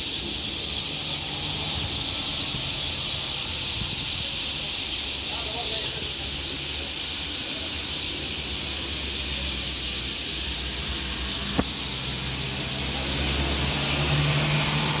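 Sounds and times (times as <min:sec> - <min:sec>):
small birds chirping: 0:00.0 - 0:15.0
vehicle engine hum: 0:08.9 - 0:15.0.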